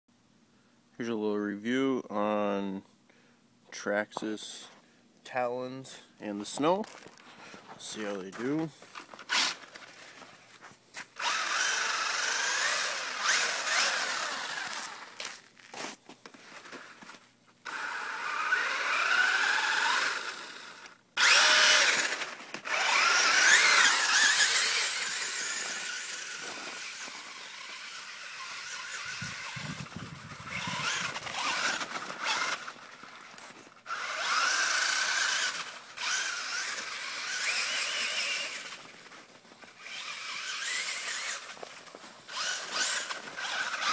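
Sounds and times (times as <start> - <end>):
electric toy truck motor whining: 9.2 - 9.9, 11.2 - 15.4, 17.6 - 39.0, 39.6 - 43.9.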